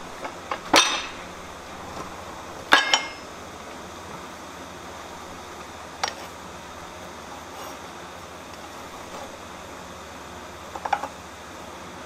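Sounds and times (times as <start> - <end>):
steel tongs clinking: 0.5 - 1.3, 2.7 - 3.2.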